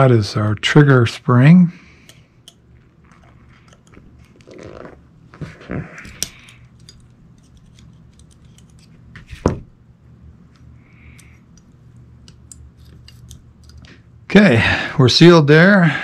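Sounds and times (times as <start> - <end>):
small metal clicks of revolver parts: 2.0 - 2.7, 6.0 - 9.0, 10.5 - 14.0.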